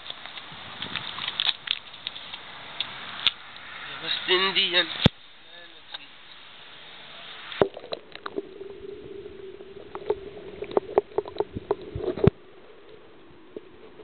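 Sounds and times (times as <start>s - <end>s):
water sloshing: 7.6s - 14.0s.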